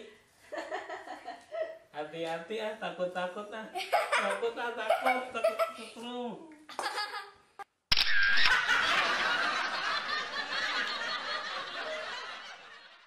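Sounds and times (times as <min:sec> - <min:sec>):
canned crowd laughter: 0:08.4 - 0:13.0.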